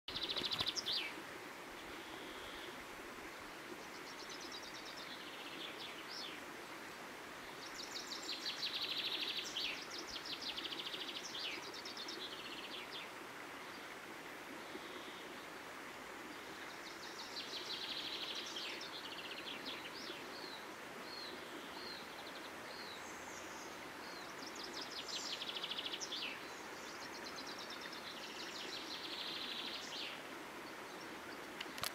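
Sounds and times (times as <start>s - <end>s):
birds singing: 0.1s - 1.2s, 16.6s - 31.9s
stream flowing: 0.1s - 31.9s.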